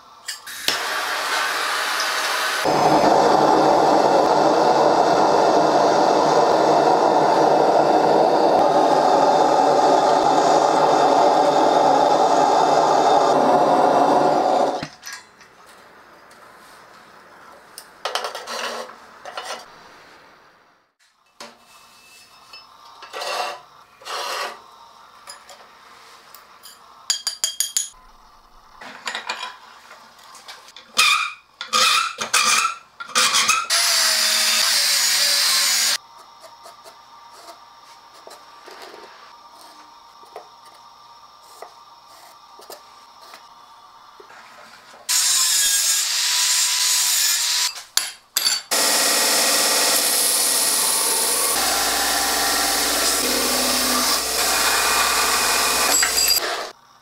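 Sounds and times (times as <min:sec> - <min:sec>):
gas forge burner roaring: 0:00.0 - 0:17.6, 0:48.7 - 0:56.9.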